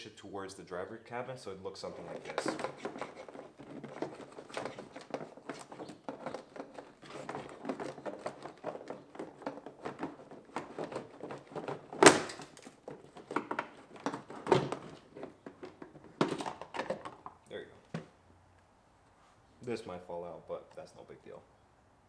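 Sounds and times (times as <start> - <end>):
plastic scraping and creaking: 1.8 - 18.1.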